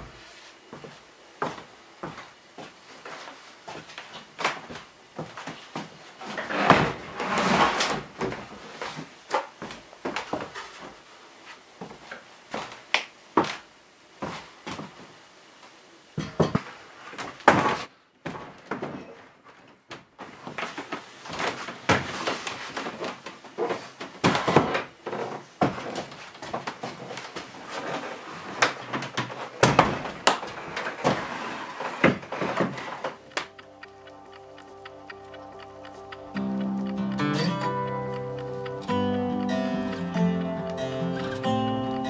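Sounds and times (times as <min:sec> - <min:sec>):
wooden cabinet knocks and thuds: 0:29.0 - 0:31.3.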